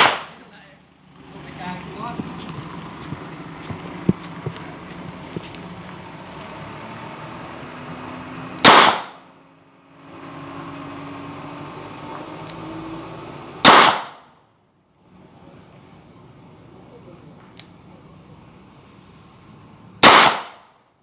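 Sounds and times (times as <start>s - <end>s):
revolver shots with echo: 0.0s - 0.5s, 8.6s - 9.2s, 13.6s - 14.2s, 20.0s - 20.6s.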